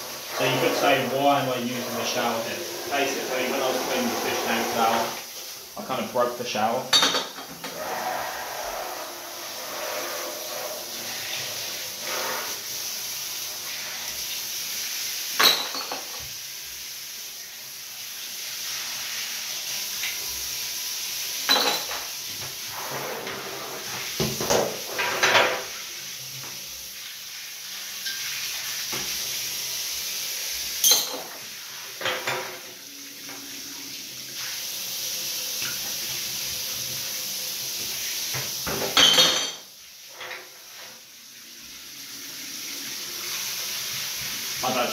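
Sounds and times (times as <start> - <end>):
water spraying from shower head: 0.0 - 44.9
glass bottles clinking together: 6.9 - 7.5, 15.4 - 16.2, 21.5 - 22.0, 30.8 - 31.4, 38.9 - 39.7.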